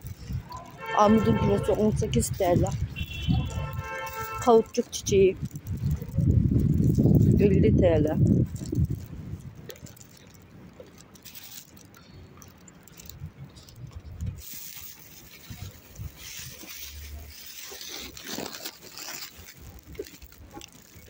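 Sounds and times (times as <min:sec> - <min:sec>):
rustling and scuffing: 0:14.4 - 0:21.0.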